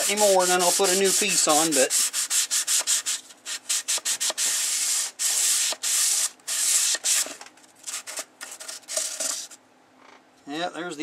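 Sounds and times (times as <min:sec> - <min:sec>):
sandpaper rasping on metal: 0:00.0 - 0:07.3.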